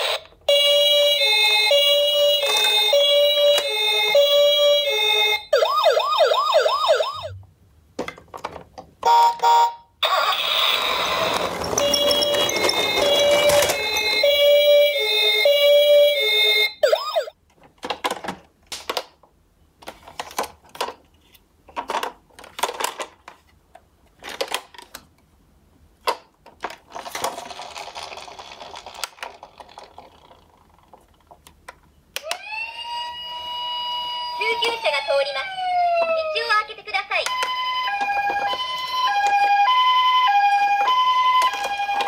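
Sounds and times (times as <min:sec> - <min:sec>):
toy electronic siren: 0:00.0 - 0:07.4, 0:09.1 - 0:17.3, 0:32.2 - 0:36.5, 0:37.2 - 0:42.0
toy siren sliding up: 0:05.5 - 0:07.3, 0:10.0 - 0:17.3
plastic toy clicks and knocks: 0:17.6 - 0:19.2, 0:21.7 - 0:23.4, 0:24.2 - 0:25.1.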